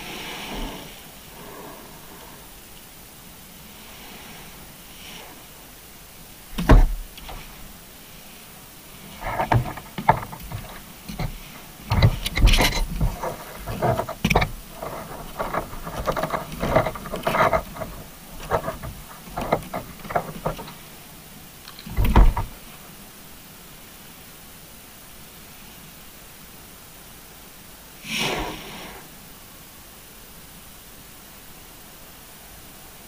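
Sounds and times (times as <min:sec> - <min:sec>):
faint steady hiss: 0:00.0 - 0:33.0
fish bumping underwater camera: 0:09.1 - 0:20.8.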